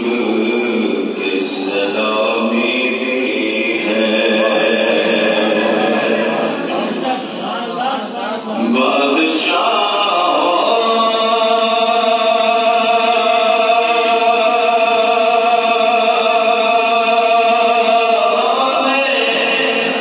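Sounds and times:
man singing unaccompanied: 0.0 - 6.7, 8.6 - 20.0.

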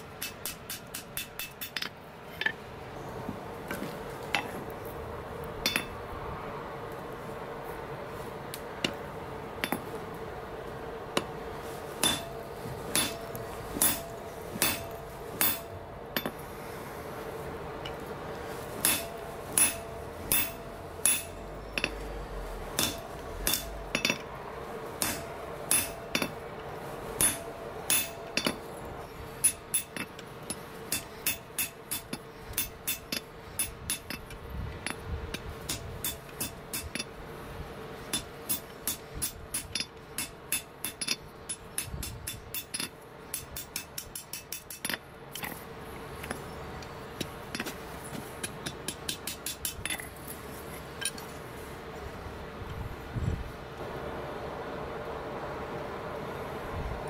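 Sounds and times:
hammer striking steel on anvil: 0.0 - 2.6, 5.6 - 6.0, 12.0 - 16.4, 18.7 - 22.1, 22.7 - 24.3, 25.0 - 26.4, 27.2 - 28.7, 29.4 - 35.0, 35.6 - 37.1, 38.1 - 45.6, 48.4 - 50.1
steady hum: 0.0 - 57.0.

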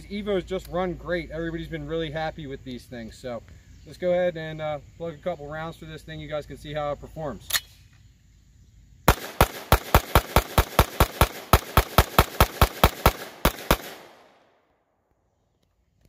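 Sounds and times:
pistol shots: 9.1 - 14.5.

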